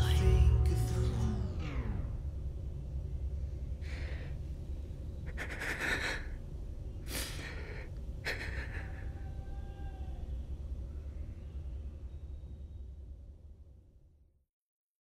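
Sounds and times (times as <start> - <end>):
steady low hum: 0.0 - 14.4
person breathing heavily: 3.8 - 4.5, 5.2 - 6.4, 7.0 - 9.2.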